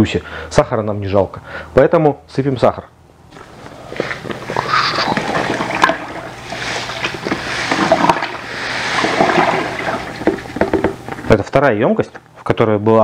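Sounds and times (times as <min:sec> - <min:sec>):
sugar pouring into plastic bucket: 0:05.2 - 0:10.8
small knocks: 0:10.2 - 0:11.2.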